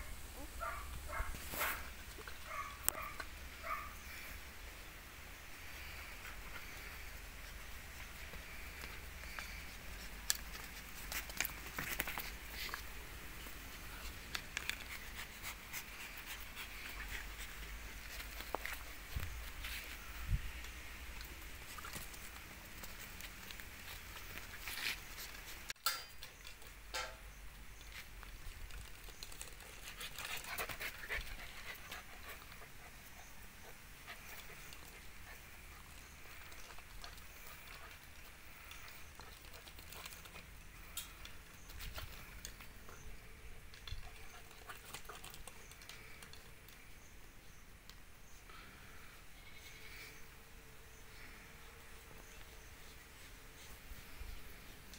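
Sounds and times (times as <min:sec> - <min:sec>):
puppies panting: 0:14.6 - 0:20.0, 0:29.3 - 0:43.1, 0:43.7 - 0:46.5.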